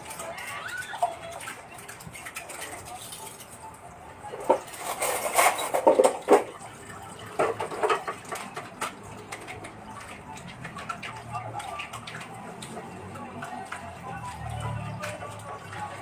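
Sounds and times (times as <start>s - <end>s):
dishes clinking and clattering: 0.0s - 14.4s
water splashing: 0.0s - 16.0s.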